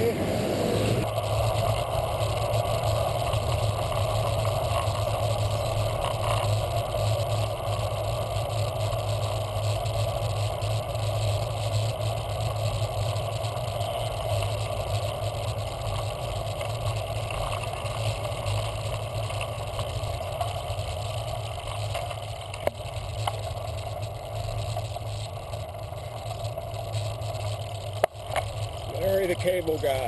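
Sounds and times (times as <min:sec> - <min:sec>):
wind rush: 0:00.0 - 0:05.0
bicycle tyres on road: 0:00.0 - 0:30.0
faint ticks: 0:01.0 - 0:29.9.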